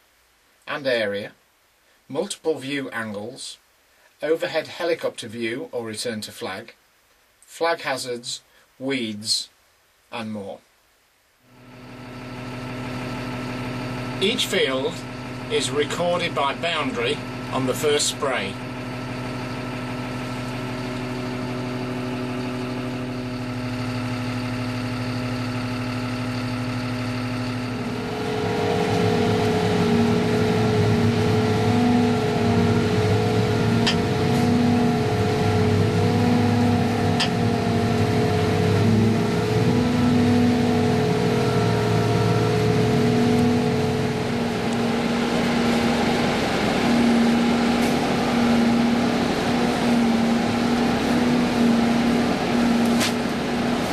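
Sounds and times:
engine droning hum: 11.5 - 53.9.

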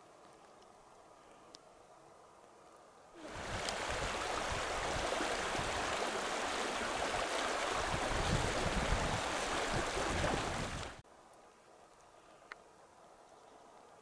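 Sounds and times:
river rushing over gravel: 3.2 - 11.0.

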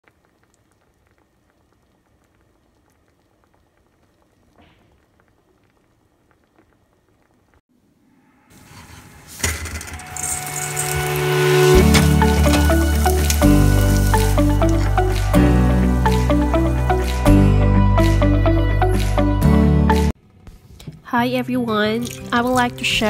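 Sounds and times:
sauce crackling in frying pan: 0.0 - 7.6, 10.3 - 17.0
music tones: 8.1 - 20.2
loud sizzling hiss: 8.5 - 16.3.

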